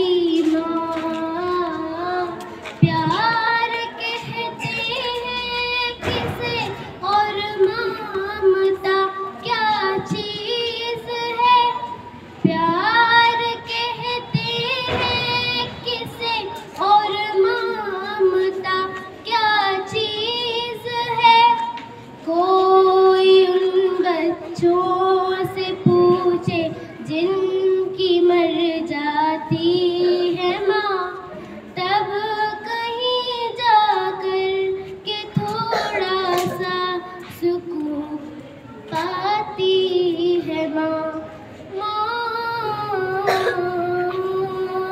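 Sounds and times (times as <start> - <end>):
girl singing into microphone: 0.0 - 44.9.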